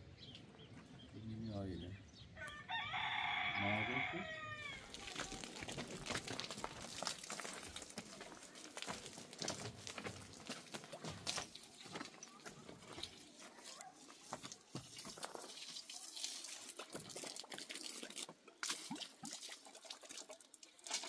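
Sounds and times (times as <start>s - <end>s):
rooster crowing: 2.4s - 5.0s.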